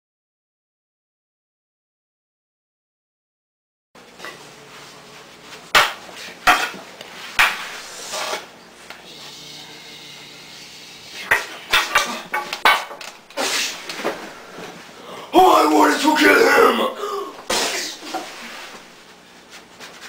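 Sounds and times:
low room noise: 4.0 - 20.0.

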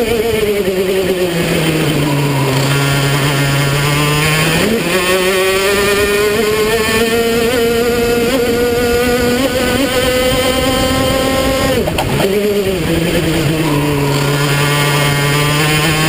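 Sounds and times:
kart engine accelerating: 0.0 - 16.0.

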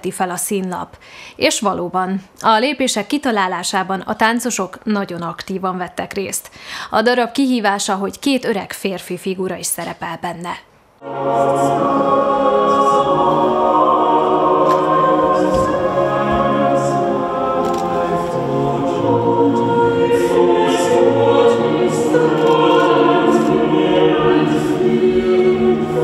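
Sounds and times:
choir singing long held notes: 11.0 - 26.0.

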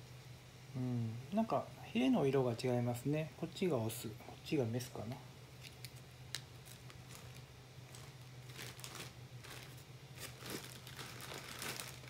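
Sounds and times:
steady low hum: 0.0 - 12.0
plastic bag crinkling: 6.3 - 12.0.

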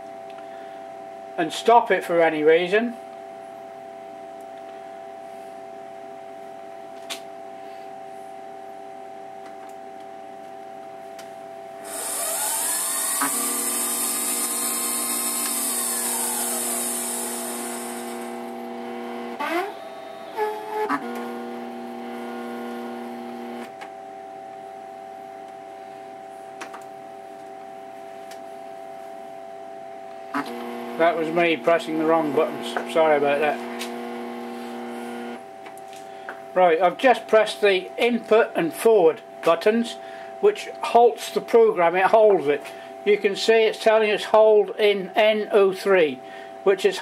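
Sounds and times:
steady electrical hum: 0.0 - 47.0
spindle motor whining: 11.8 - 23.8, 30.3 - 35.4
stepper motors whirring: 11.9 - 23.7, 30.4 - 35.4.

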